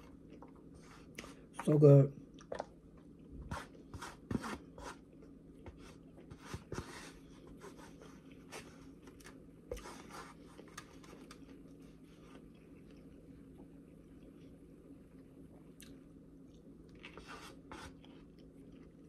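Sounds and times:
person eating with crunches: 7.5s - 19.0s.

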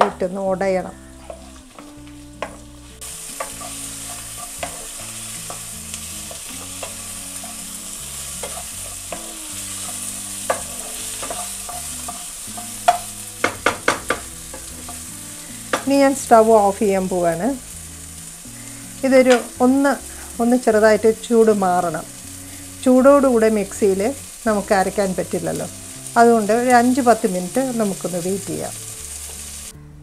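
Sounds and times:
vegetables sizzling in oil: 0.0s - 29.7s
spatula tapping: 1.2s - 15.1s, 15.7s - 16.1s
spatula scraping and knocking pan: 1.2s - 16.1s.

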